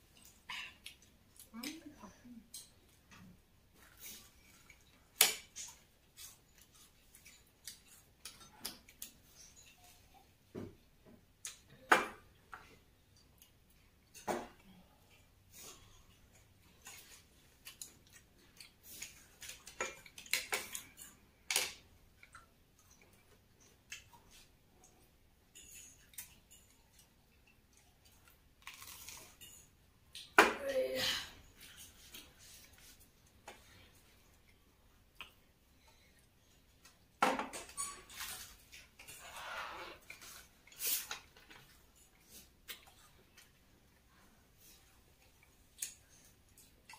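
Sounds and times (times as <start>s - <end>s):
crunchy chewing: 27.7s - 29.5s.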